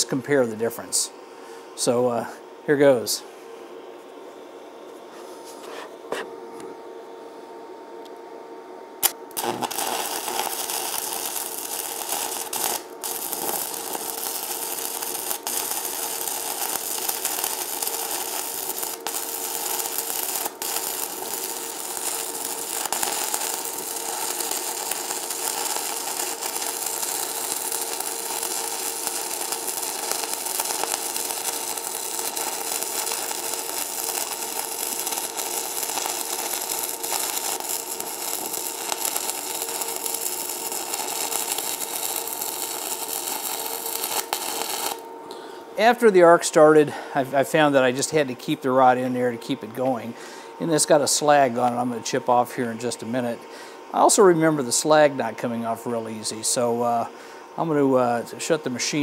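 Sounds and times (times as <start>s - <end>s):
welding arc hissing: 9.0s - 53.0s.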